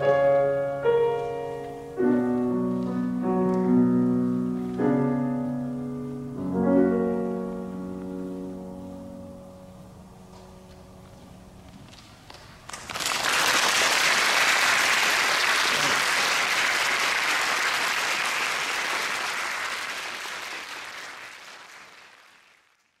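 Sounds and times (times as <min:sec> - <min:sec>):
piano note: 0:00.0 - 0:11.7
audience applauding: 0:12.7 - 0:23.0.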